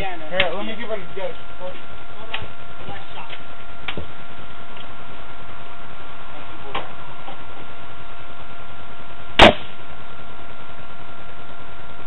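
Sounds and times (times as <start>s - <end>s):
steady background hiss: 0.0s - 12.0s
gunshot: 9.4s - 9.8s.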